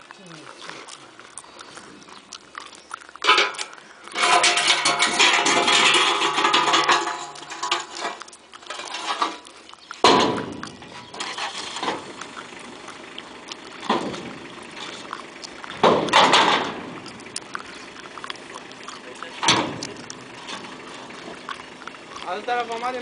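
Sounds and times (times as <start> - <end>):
metal ramp clang: 3.2 - 9.4, 10.0 - 12.1, 15.7 - 17.2, 19.4 - 21.4
metal ramp grating scrape: 3.2 - 12.8, 13.4 - 22.3.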